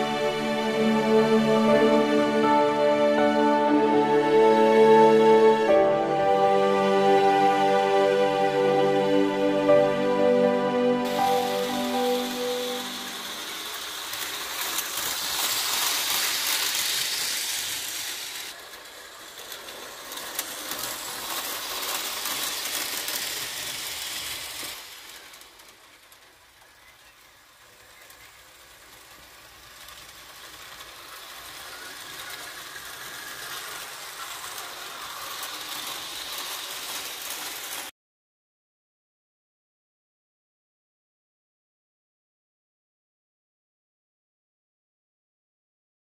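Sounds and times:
model train motor whirring: 11.1s - 37.9s.

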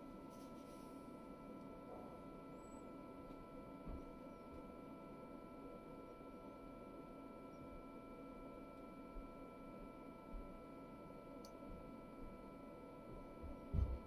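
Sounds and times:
small fan humming with whine: 0.0s - 14.0s.

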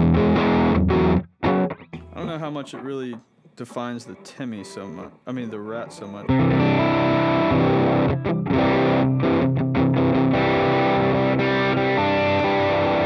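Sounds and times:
distorted electric guitar chords: 0.0s - 2.8s, 6.2s - 13.0s.

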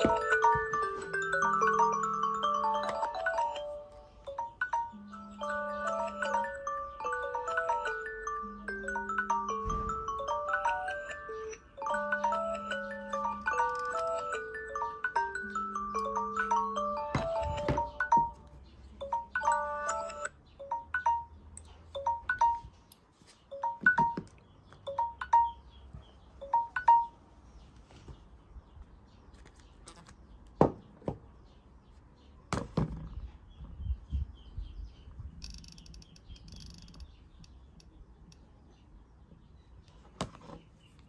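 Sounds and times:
phone alert chime: 0.0s - 21.4s, 22.0s - 22.8s, 23.5s - 25.8s, 26.4s - 27.2s
taps and knocks of handled phones: 17.0s - 18.4s, 23.6s - 24.8s.

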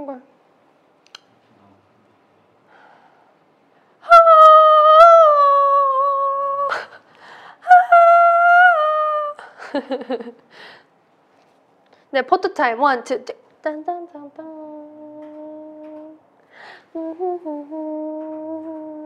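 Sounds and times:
woman breathing: 2.7s - 4.0s, 6.7s - 7.7s, 10.4s - 11.0s, 16.4s - 17.0s
woman singing high notes: 4.0s - 7.0s, 7.6s - 9.5s, 13.7s - 16.2s, 16.9s - 19.0s.

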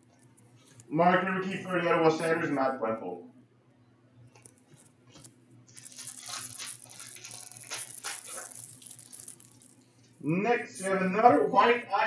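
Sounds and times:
trading cards rustling: 4.4s - 10.1s.

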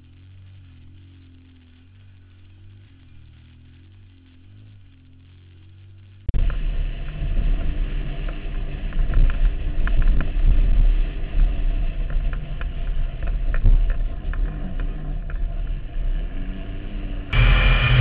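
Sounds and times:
off-road engine running hard: 0.0s - 18.0s.

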